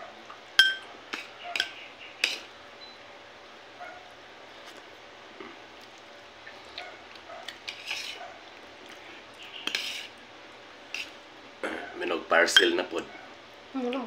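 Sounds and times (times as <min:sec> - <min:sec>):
cutlery clinking on a plate: 0:00.6 - 0:02.4.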